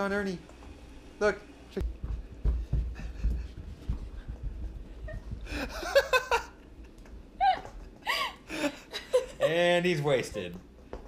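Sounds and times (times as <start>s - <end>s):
people laughing: 5.5s - 6.7s, 8.5s - 10.0s.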